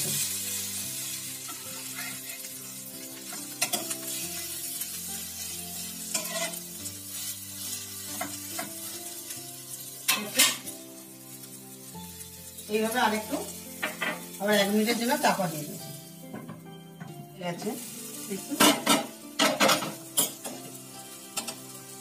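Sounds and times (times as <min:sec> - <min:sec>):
bread sizzling in a frying pan: 0:00.0 - 0:22.0
spatula scraping and tapping pan: 0:03.3 - 0:04.2, 0:06.1 - 0:06.6.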